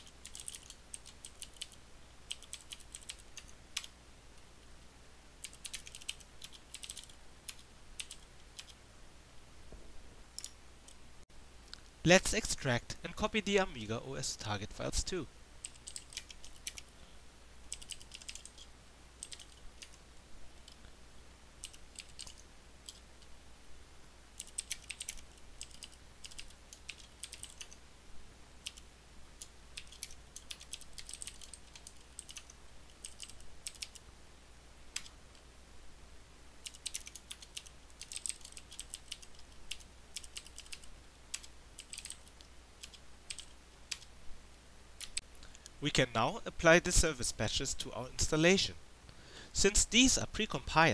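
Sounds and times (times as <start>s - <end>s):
computer keyboard typing: 0.0s - 3.9s, 5.4s - 8.8s, 15.6s - 16.9s, 17.7s - 20.0s, 21.6s - 23.0s, 24.4s - 27.8s, 28.6s - 34.0s, 36.6s - 44.1s
faint low hum: 0.0s - 50.9s.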